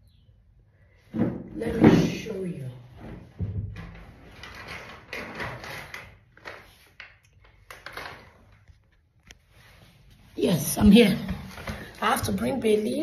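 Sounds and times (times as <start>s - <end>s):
rustling and rummaging: 2.8s - 12.6s.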